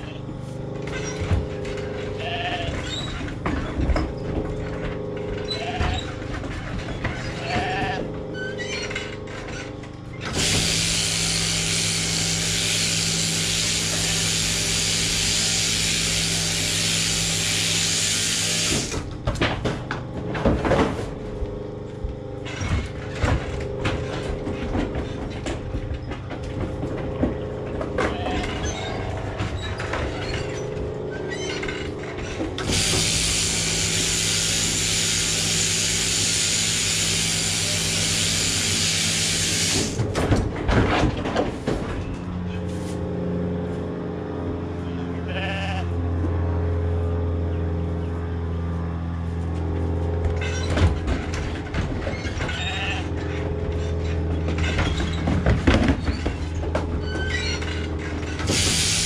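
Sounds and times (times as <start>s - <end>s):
shearing machinery humming: 0.0s - 59.0s
sheep bleating: 2.0s - 2.9s, 5.4s - 6.2s, 7.2s - 8.1s, 28.0s - 29.0s, 45.1s - 46.0s, 52.5s - 53.3s.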